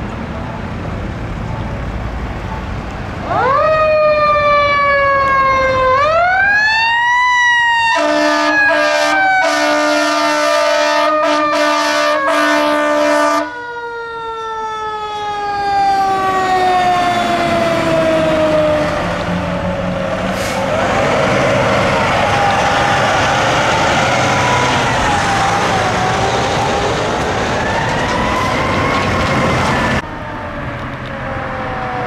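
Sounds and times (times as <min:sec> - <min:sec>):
fire engine siren: 0:01.4 - 0:32.0
air horn blasts: 0:07.9 - 0:13.6.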